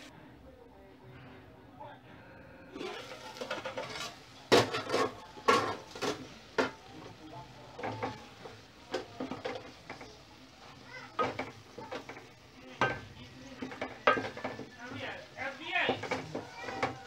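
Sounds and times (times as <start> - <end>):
hiss of cooking: 0.0 - 17.0
wooden spoon knocking on pot: 11.2 - 14.8, 15.8 - 17.0.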